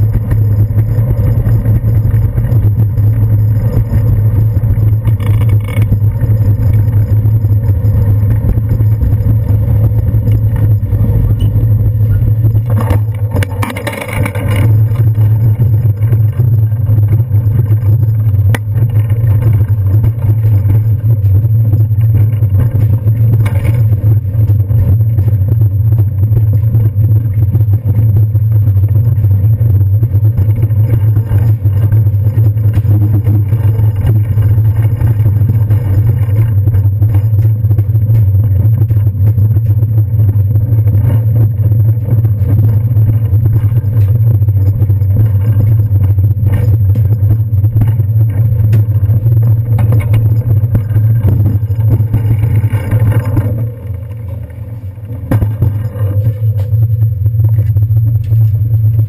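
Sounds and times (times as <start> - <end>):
bicycle ride rumble: 0.0 - 59.0
low wind: 0.0 - 59.0.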